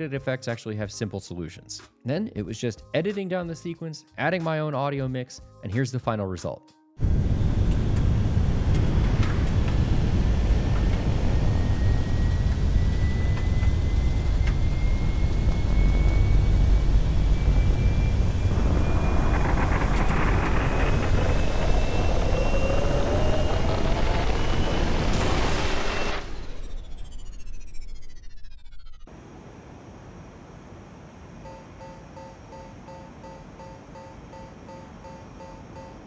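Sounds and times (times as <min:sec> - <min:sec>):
starfighter engine rumble: 0:07.0 - 0:29.1
lower climbing whine: 0:07.0 - 0:36.0
thin rising whine: 0:07.0 - 0:36.0.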